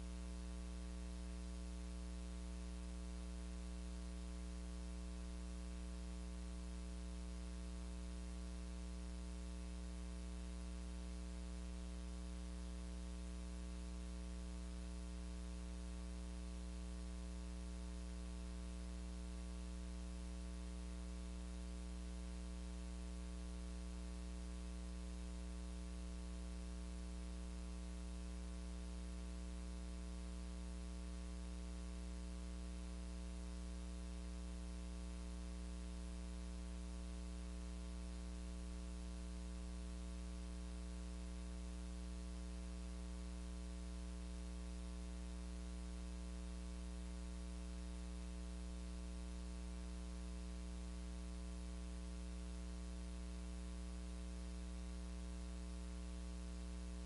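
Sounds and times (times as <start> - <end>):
electrical mains hum: 0.0 - 20.4.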